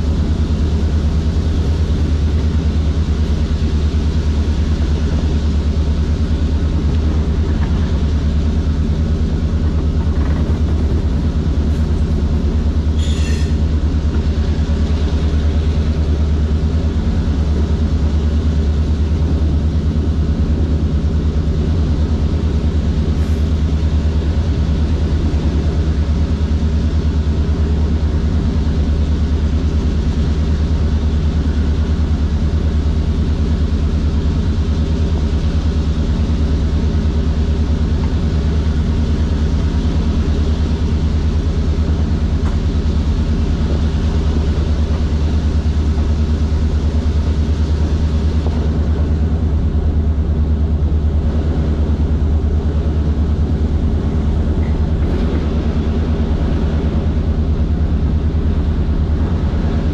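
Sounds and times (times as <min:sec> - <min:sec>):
locomotive diesel engine under load: 0:00.0 - 0:59.9
high-pitched squeak: 0:13.0 - 0:13.6.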